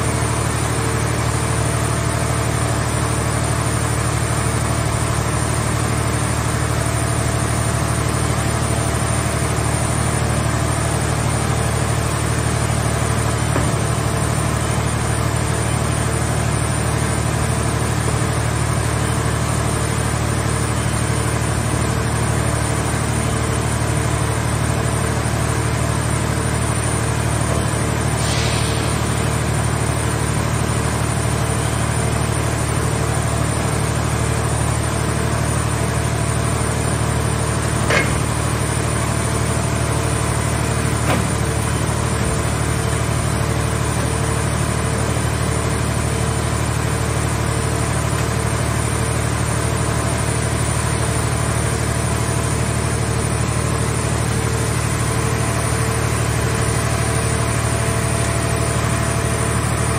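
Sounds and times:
hydraulic power unit hum: 0:00.0 - 0:59.9
scrap metal clanks: 0:37.8 - 0:38.4.

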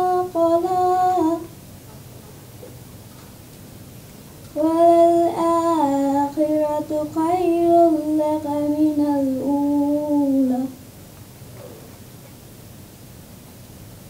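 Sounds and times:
woman chanting recitation: 0:00.0 - 0:01.5, 0:04.5 - 0:10.8.

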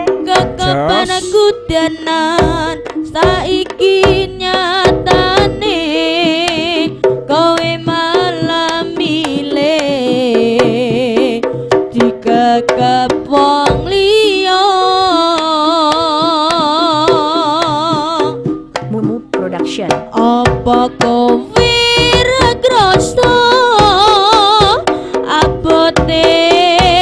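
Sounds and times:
wavering melody line: 0:00.0 - 0:11.4
hand drum strokes: 0:00.0 - 0:27.0.

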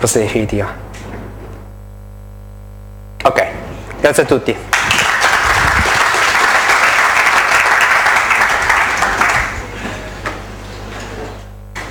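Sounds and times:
audience applauding: 0:04.7 - 0:09.8.

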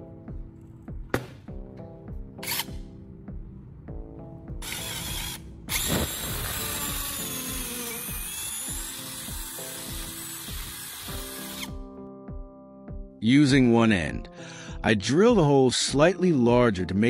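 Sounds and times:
cordless drill boring wood: 0:04.6 - 0:11.8.

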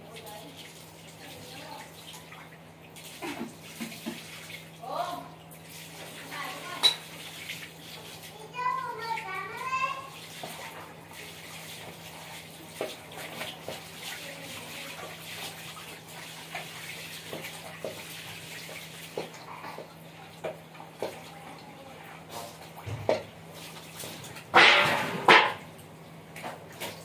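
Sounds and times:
water splashing and sloshing: 0:00.0 - 0:27.0.

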